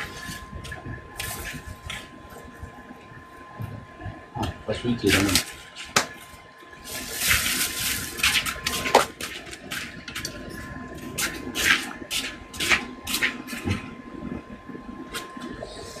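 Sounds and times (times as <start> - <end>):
liquid hissing and bubbling in wok: 5.0 - 16.0.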